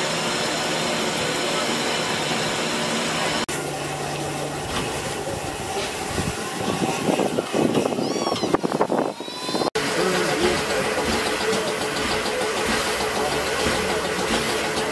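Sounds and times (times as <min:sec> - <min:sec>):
steam hissing: 0:09.8 - 0:14.9
steam locomotive exhaust: 0:09.8 - 0:14.9.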